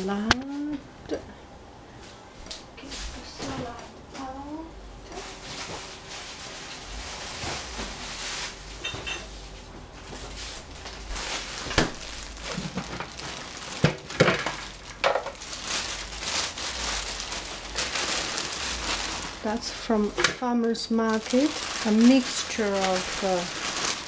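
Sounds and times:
plastic rustling: 5.1s - 24.0s
plastic knocking in metal sink: 13.8s - 15.4s.

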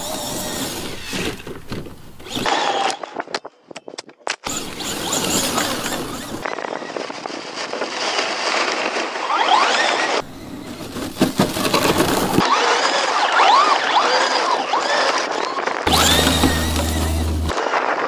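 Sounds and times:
electric motor whining: 0.0s - 1.5s, 4.5s - 6.4s, 13.5s - 17.5s
tyres running through grass: 15.8s - 17.6s.

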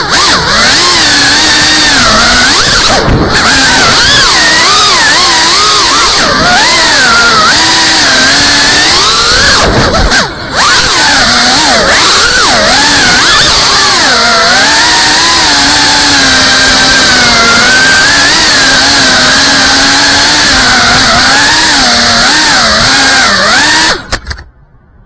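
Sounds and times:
drone motors whining: 0.0s - 24.4s
knocks of drone landing: 2.6s - 4.0s, 9.4s - 10.9s.

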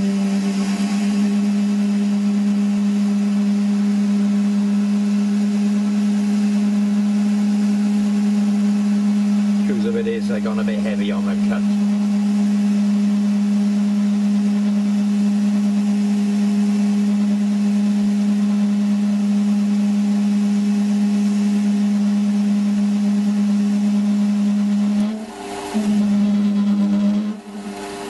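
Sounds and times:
metal lathe ringing hum: 0.0s - 28.0s
lathe cut chattering: 9.5s - 12.2s.

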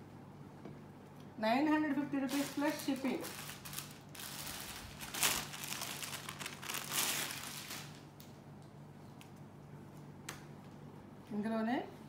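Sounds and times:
fabric rustling: 2.3s - 8.0s.

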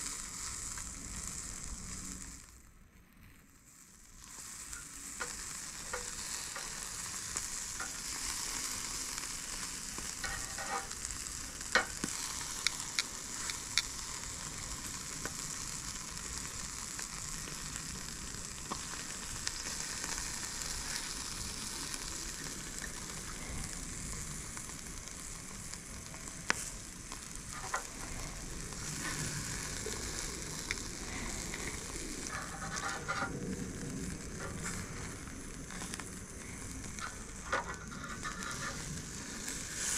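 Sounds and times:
crabs sizzling on grill: 0.0s - 39.9s
tongs clicking on metal grate: 10.2s - 11.0s.

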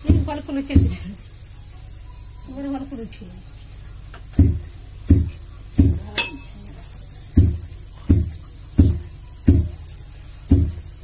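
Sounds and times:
heavy thuds of pounding rice: 0.0s - 1.2s, 4.4s - 6.3s, 7.3s - 11.0s.

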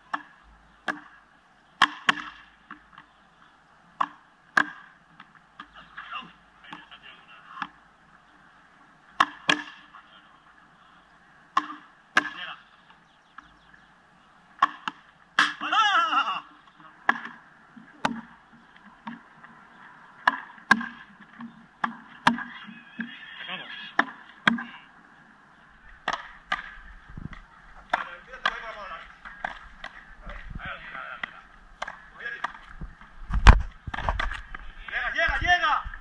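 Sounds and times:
rackets striking rubber ball: 0.1s - 1.2s, 1.8s - 3.1s, 4.0s - 5.0s, 9.2s - 9.9s, 11.5s - 12.4s, 14.6s - 15.6s, 17.0s - 17.4s, 18.0s - 18.3s, 20.2s - 23.2s, 26.0s - 30.5s, 31.2s - 34.4s.

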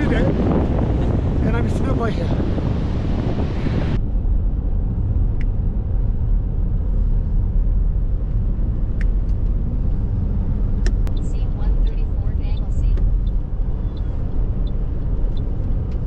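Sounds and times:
car driving rumble: 0.0s - 16.0s.

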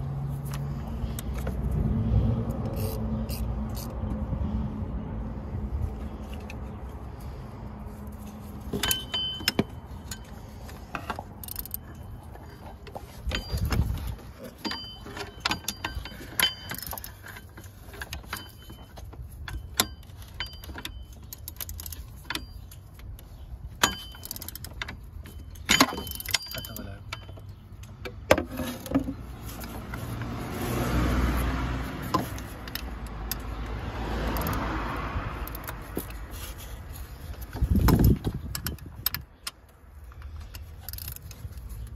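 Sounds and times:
metal tools clinking: 8.1s - 30.3s.

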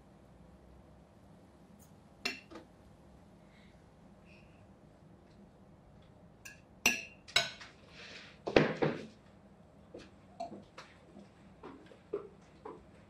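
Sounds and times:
cutlery clinking on plates: 2.3s - 2.6s, 6.5s - 7.8s.

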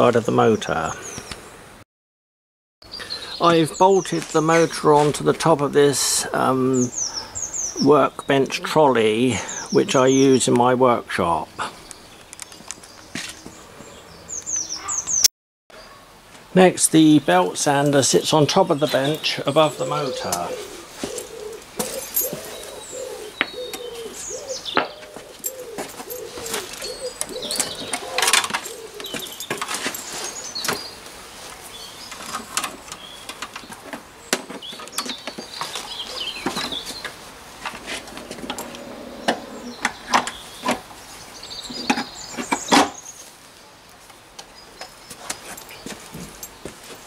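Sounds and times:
birds chirping: 0.0s - 1.7s, 2.8s - 43.3s, 44.4s - 47.0s
pigeon cooing: 19.7s - 29.6s, 37.9s - 39.9s.

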